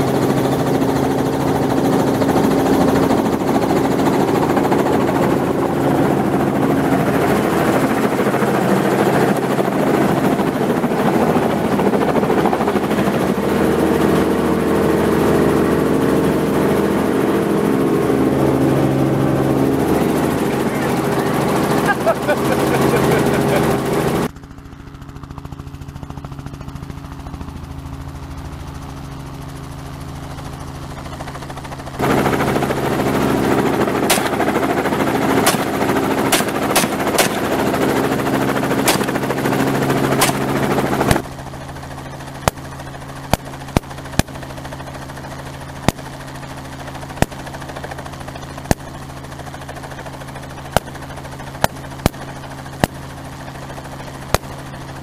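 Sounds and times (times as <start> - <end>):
helicopter rotor and engine drone: 0.0 - 55.0
shotgun shots: 34.0 - 34.5, 35.4 - 37.6, 38.8 - 39.3, 40.2 - 41.2.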